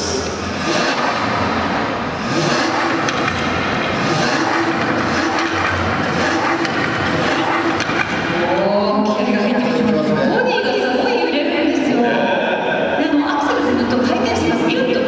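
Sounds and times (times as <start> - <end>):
car engine running at exhaust: 0.0 - 8.4.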